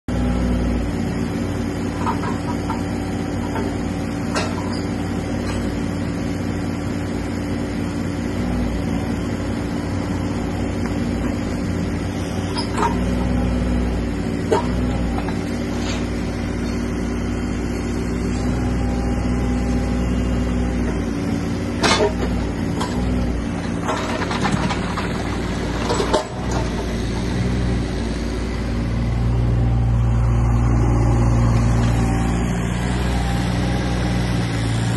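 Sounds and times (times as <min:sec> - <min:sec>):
excavator diesel engine running: 0:00.1 - 0:34.9
metal clanks and knocks: 0:02.0 - 0:03.7, 0:04.3 - 0:05.7, 0:21.8 - 0:27.2.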